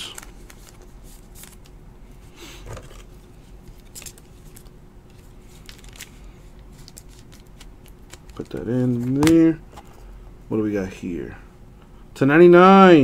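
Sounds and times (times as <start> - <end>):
plastic sleeve rustling: 0.0 - 1.8, 2.6 - 9.9.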